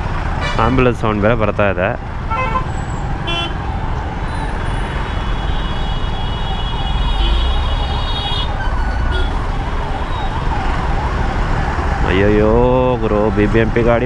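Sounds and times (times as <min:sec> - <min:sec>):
road traffic rumble: 0:00.0 - 0:14.0
ambulance siren wailing: 0:02.1 - 0:14.0.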